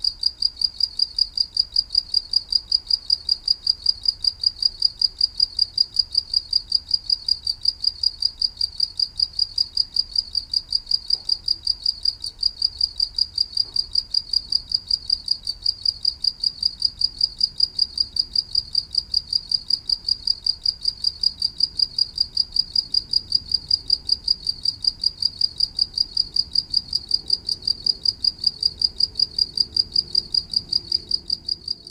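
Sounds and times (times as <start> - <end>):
cricket chirping: 0.0 - 31.9.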